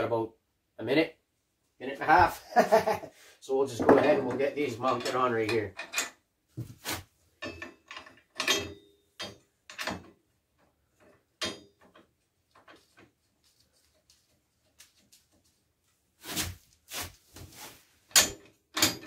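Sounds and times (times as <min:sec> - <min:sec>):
metal plate and bolts clanking: 0:07.4 - 0:10.2, 0:11.0 - 0:13.0, 0:18.0 - 0:19.0.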